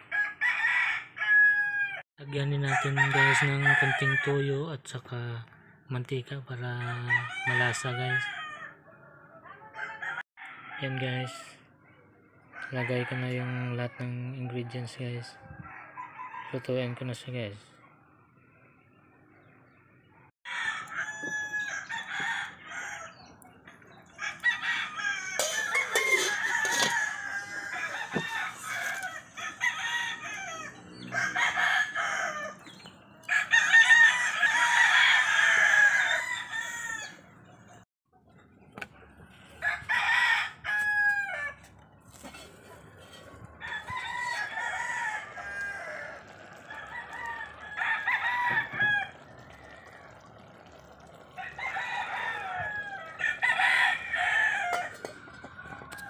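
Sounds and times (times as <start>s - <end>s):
roosters crowing: 0.0s - 4.6s, 6.6s - 11.7s, 12.4s - 17.0s, 20.5s - 37.6s, 39.5s - 56.0s.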